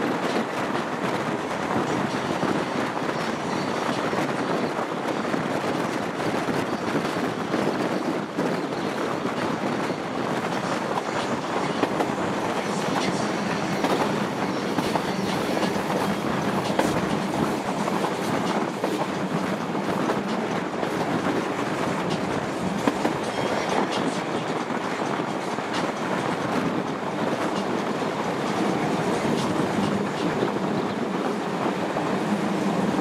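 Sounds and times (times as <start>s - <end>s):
train rumble: 0.0s - 33.0s.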